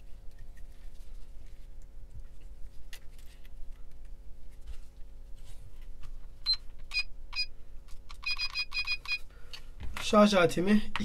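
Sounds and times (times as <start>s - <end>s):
battery charger beeping: 6.4s - 7.5s, 8.1s - 9.3s.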